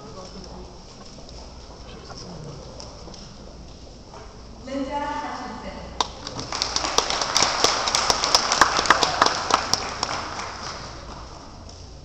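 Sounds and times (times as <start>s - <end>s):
sharp claps close by: 6.0s - 11.3s
audience applauding: 6.0s - 11.4s.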